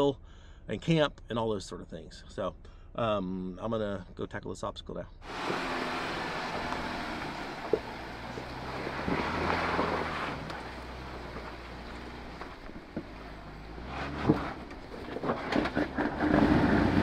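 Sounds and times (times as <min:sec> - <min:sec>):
engine humming low: 0:05.2 - 0:17.0.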